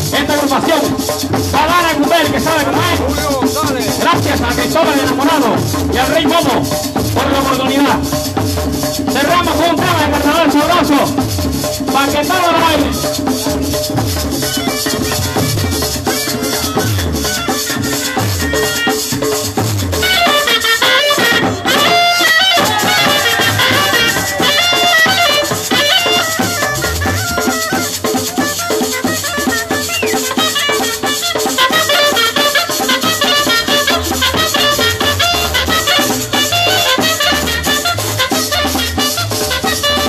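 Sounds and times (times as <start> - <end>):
drums: 0.0 - 40.0
maracas: 0.0 - 40.0
cane clarinet fast melody: 9.1 - 40.0.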